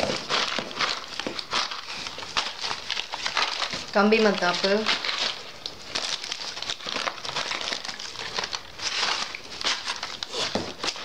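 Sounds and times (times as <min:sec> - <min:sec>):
packets and cardboard rustling: 0:00.0 - 0:11.0.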